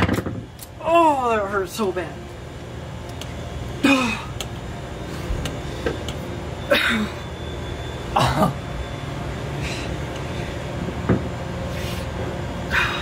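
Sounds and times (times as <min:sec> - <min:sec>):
steady low hum: 0:00.0 - 0:13.0
man coughing or grunting: 0:08.1 - 0:08.6.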